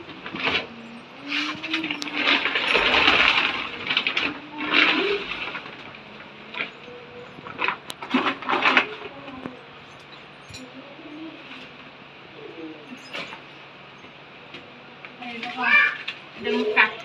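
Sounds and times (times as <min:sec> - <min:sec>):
plastic bags rustling: 0:00.0 - 0:10.7.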